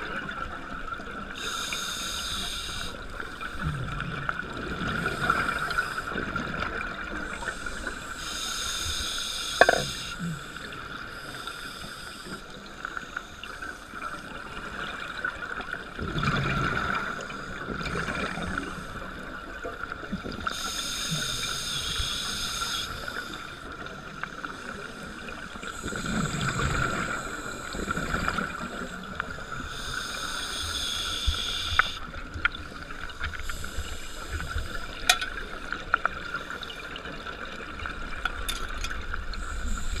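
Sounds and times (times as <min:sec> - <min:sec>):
scuba regulator breathing: 0:01.4 - 0:03.8, 0:07.3 - 0:13.9, 0:20.5 - 0:32.1, 0:33.1 - 0:35.4.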